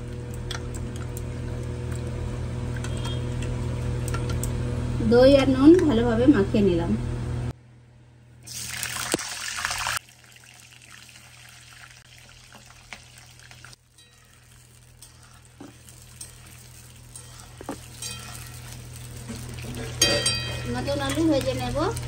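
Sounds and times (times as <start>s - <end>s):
potatoes frying in oil: 8.5s - 22.0s.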